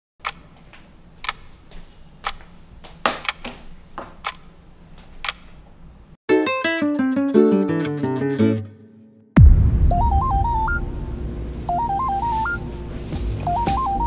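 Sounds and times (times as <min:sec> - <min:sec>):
music: 0:06.3 - 0:14.0.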